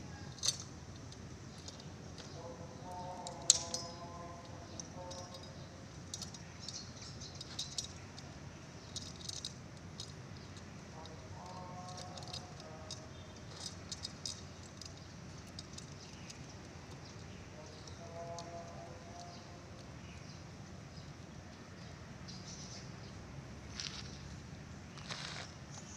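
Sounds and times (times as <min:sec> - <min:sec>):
chainsaw chain clinking and rattling: 0:00.2 - 0:02.3, 0:03.0 - 0:20.3.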